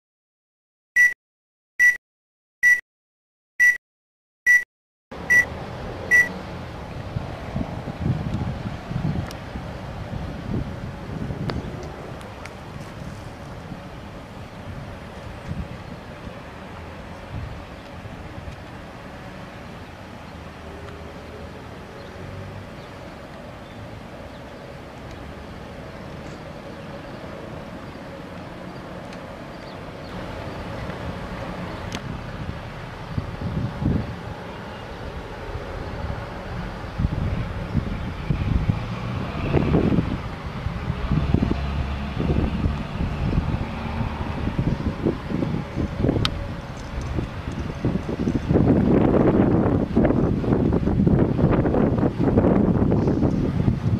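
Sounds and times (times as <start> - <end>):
high-pitched countdown beeps: 1.8 - 2.0, 2.6 - 2.8, 3.6 - 3.8, 4.5 - 4.7, 6.1 - 6.3
wind rumble on microphone: 5.4 - 53.9.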